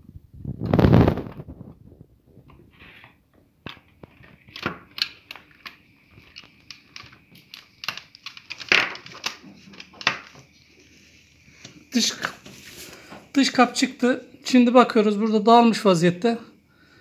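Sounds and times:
plastic clips clicking and creaking: 3.6s - 10.5s.

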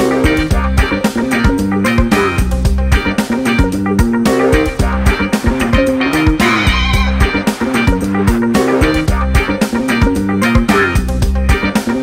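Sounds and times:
guitar bass and drums music: 0.0s - 12.0s.

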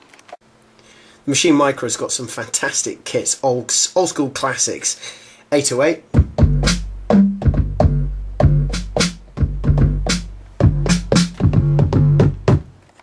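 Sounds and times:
deep kick drum boom: 6.2s - 12.6s
snare and hi-hat hits: 6.2s - 12.7s.

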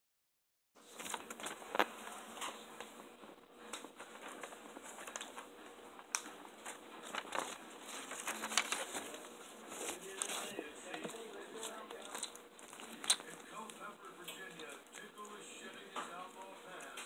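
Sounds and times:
paper rustling: 0.8s - 3.0s, 3.6s - 17.0s.

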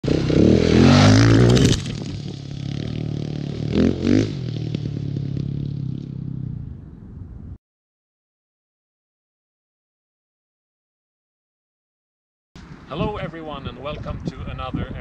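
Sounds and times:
motorcycle passing at speed: 0.0s - 7.3s.

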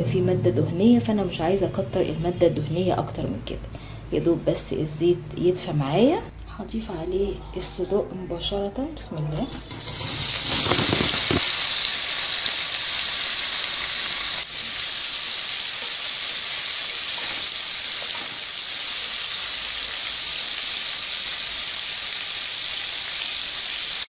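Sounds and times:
sausage sizzling in oil: 9.5s - 24.0s.

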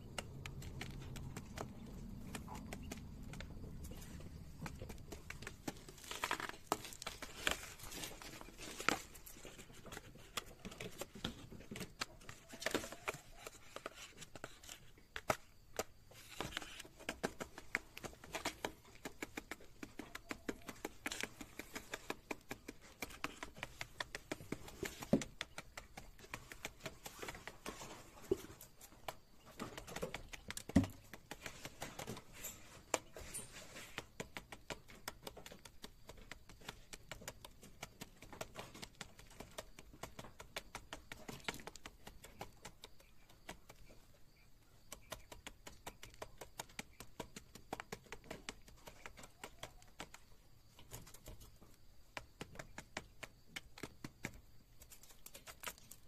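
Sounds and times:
quail beak tapping on plastic: 0.0s - 27.7s, 34.0s - 55.9s.

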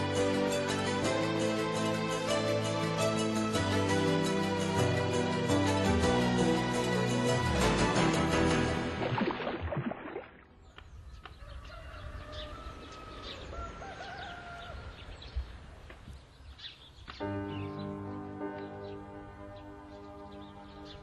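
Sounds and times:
theme music: 0.0s - 9.4s, 17.2s - 21.0s
small birds chirping: 10.6s - 21.0s
rooster crowing: 11.4s - 15.2s.

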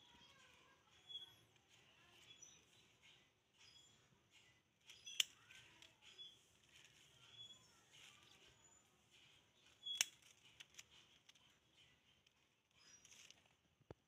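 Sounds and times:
faint blade clicks: 4.9s - 6.2s.

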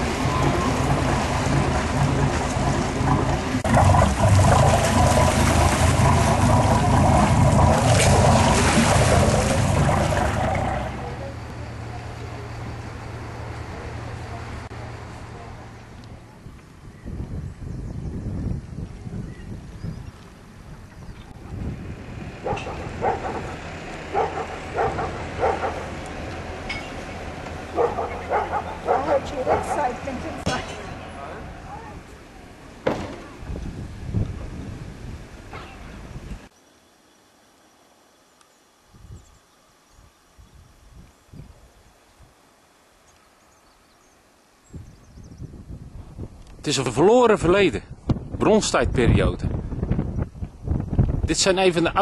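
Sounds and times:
water splashing against hull: 0.0s - 11.5s
boat engine humming: 0.0s - 16.9s, 20.3s - 36.5s
dog barking: 22.4s - 25.9s, 27.7s - 29.9s.

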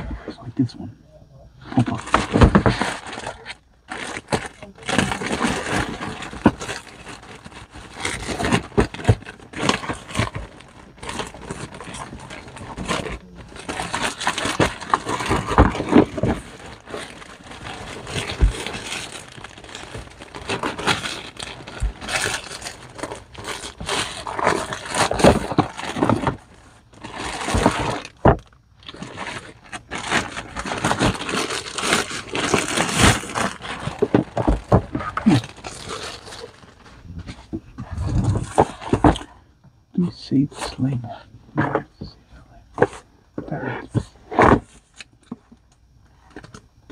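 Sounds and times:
plastic mailer bag crinkling and tearing: 1.8s - 37.2s.

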